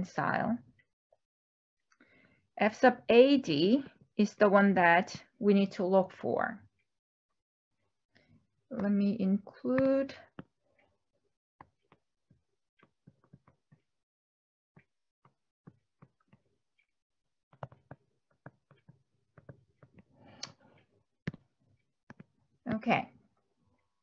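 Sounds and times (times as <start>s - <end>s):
stylus tapping on tablet screen: 9.7s - 10.9s, 11.6s - 13.9s, 14.8s - 16.9s, 17.5s - 23.0s.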